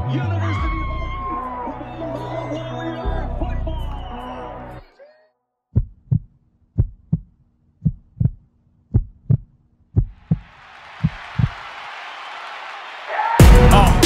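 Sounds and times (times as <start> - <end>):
heartbeat thumps: 5.8 - 11.5.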